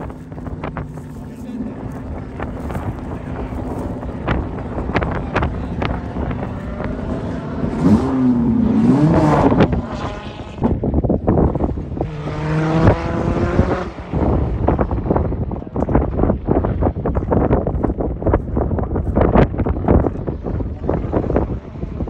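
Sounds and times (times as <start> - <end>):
race car engine revving: 0.0 - 16.1
wind buffeting microphone: 0.0 - 22.0.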